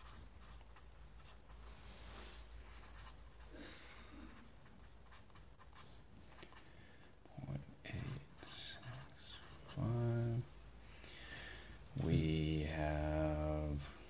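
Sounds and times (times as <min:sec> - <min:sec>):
marker writing on paper: 0:00.0 - 0:01.6, 0:02.7 - 0:06.7, 0:07.9 - 0:10.1.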